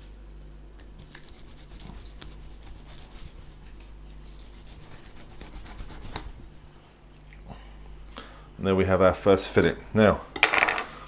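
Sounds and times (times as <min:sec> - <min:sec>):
knife scraping fish backbone: 0:01.0 - 0:06.3.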